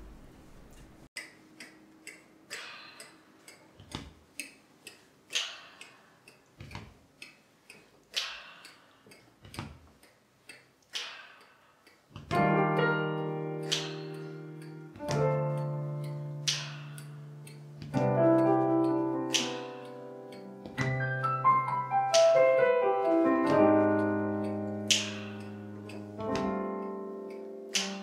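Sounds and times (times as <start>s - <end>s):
vocal percussion clicks and thumps: 13.6s - 22.4s, 23.4s - 28.0s.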